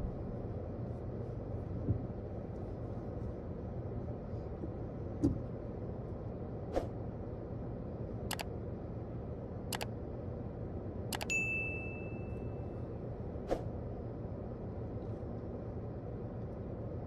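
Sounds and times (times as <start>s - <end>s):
mouse click sound effects: 11.1s - 11.3s.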